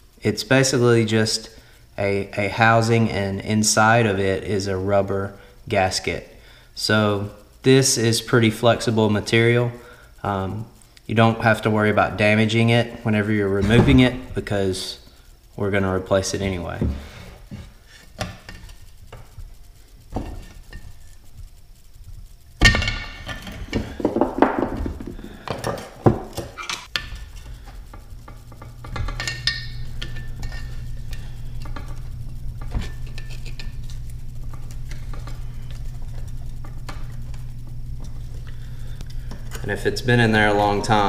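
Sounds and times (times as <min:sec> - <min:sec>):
steady low hum: 0:00.0 - 0:41.0
screwdriver scraping against metal: 0:28.5 - 0:37.4.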